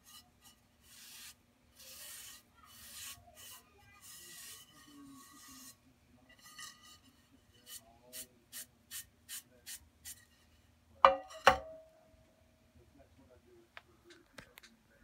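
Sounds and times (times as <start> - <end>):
sponge wiping ceramic plate: 0.0 - 8.7
plate knocking on metal wheel: 11.0 - 11.8.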